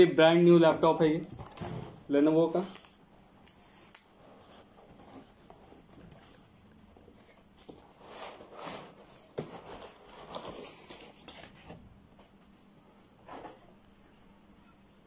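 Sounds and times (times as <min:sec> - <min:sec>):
cardboard and plastic wrap rustling: 0:00.2 - 0:12.4.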